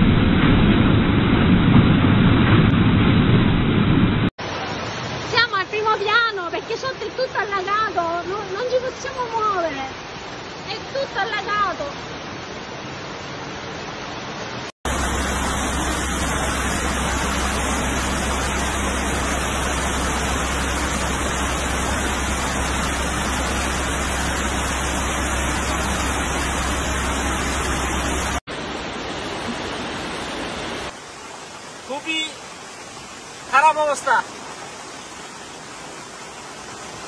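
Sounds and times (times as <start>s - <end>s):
floodwater rushing with low rumble: 0.0s - 37.0s.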